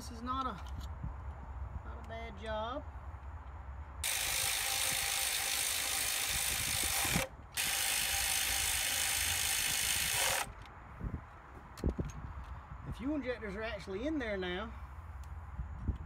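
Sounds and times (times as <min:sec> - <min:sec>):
electric ratchet whirring: 0:04.0 - 0:10.6.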